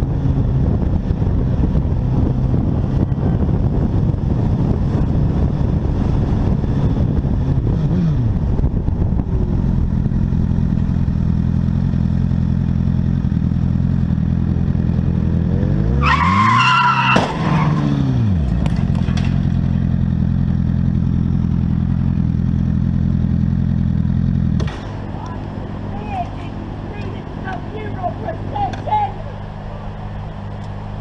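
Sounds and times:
motorcycle engine running: 0.0s - 15.8s, 18.1s - 31.0s
tyres squealing in skid: 16.0s - 17.9s
crash bang: 17.1s - 17.6s.

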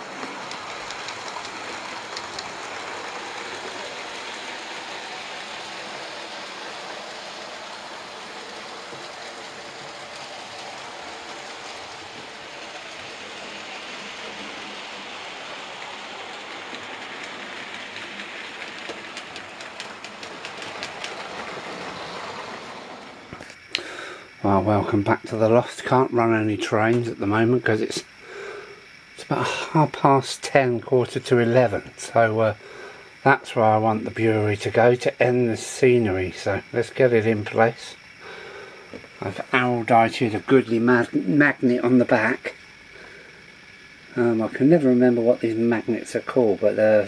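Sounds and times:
wheels clicking over rail joints: 0.0s - 23.8s, 33.2s - 47.0s
model train wheels rumbling on rails: 0.0s - 47.0s.

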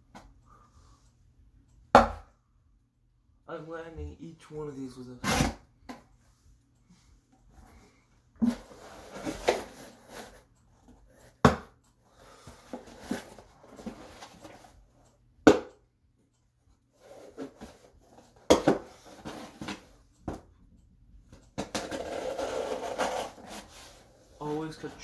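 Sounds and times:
blade scraping through cardboard: 22.0s - 24.0s.

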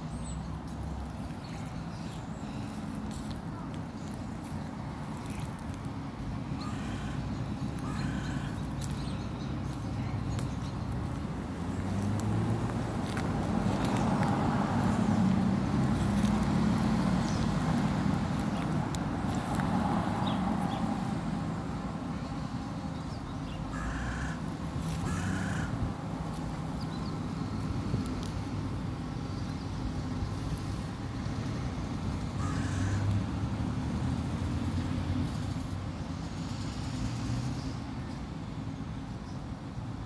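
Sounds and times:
road traffic rumble: 0.0s - 40.0s
crow cawing: 6.6s - 7.2s, 7.8s - 8.6s, 23.7s - 24.4s, 25.0s - 25.8s, 32.4s - 33.0s.

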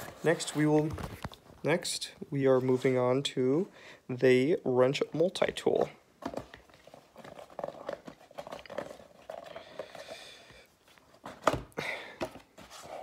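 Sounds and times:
cardboard rustling and scraping: 0.0s - 1.4s, 6.2s - 10.1s, 10.8s - 13.0s.

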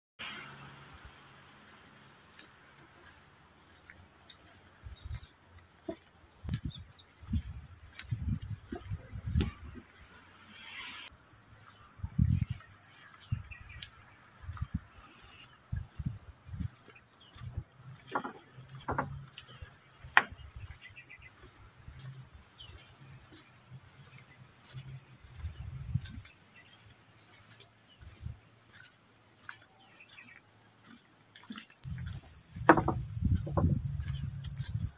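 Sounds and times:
insects chirring: 0.2s - 34.9s
footsteps on wooden boardwalk: 2.3s - 10.1s, 12.5s - 34.7s.

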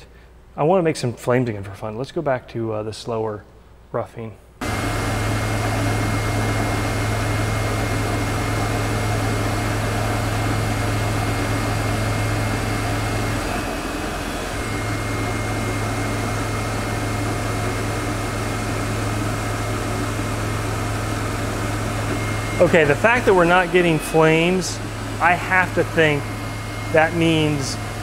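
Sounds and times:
lathe humming with high whine: 4.6s - 28.0s.

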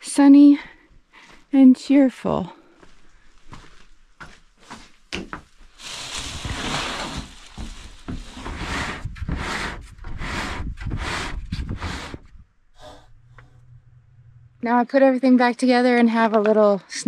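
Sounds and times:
rubbing and scraping on plastic: 5.7s - 12.4s.

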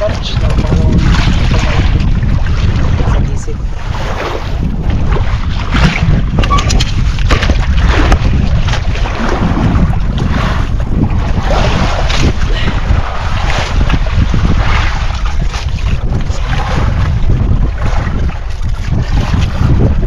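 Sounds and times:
open sea wash: 0.0s - 20.0s
water splashing: 0.0s - 20.0s
wind buffeting microphone: 0.0s - 20.0s
knocks on boat: 5.7s - 8.9s.

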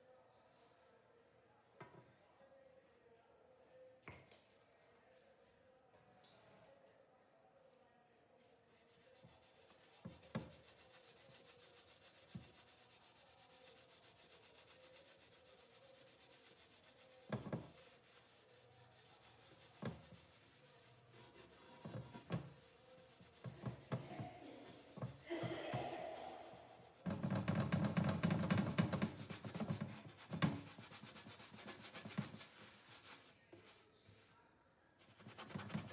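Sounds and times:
sponge scrubbing metal lid: 9.4s - 33.3s, 35.1s - 35.9s.

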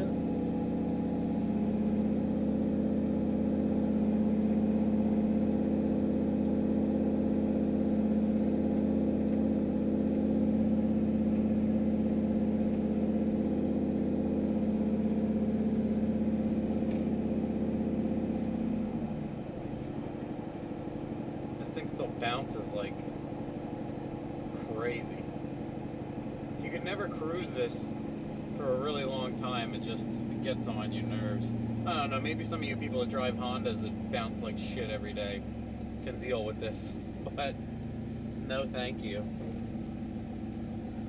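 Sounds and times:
truck engine droning inside cab: 0.0s - 41.0s.

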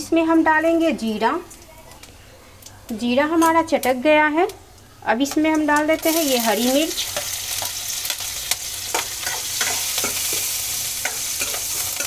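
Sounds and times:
chillies sizzling in hot ghee: 0.0s - 2.2s, 2.9s - 12.0s
steel spoon clinking against pan: 8.9s - 12.0s.

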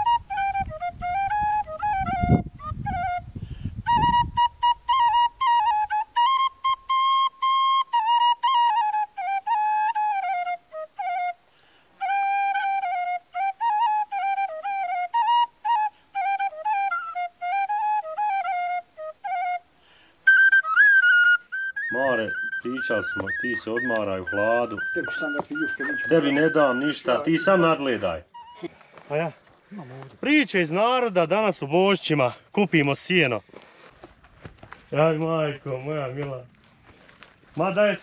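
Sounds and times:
solo flute melody: 0.0s - 29.4s.

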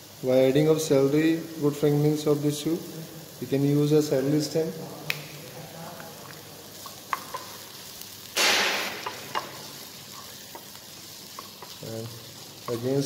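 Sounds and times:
vegetables sizzling in pan: 0.0s - 13.0s
wooden spatula knocking pan: 8.4s - 9.6s.

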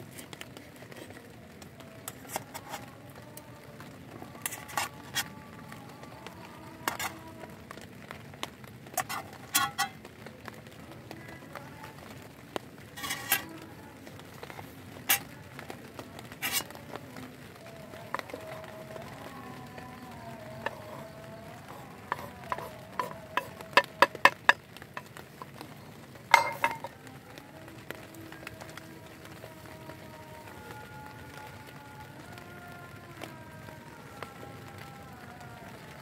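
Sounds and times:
sharp clicks and knocks: 22.1s - 25.5s.

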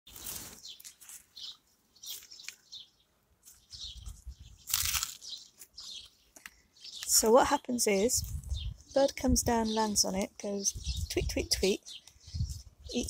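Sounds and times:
rustling noise: 0.1s - 2.7s, 3.4s - 6.4s
small birds chirping: 0.1s - 13.0s.

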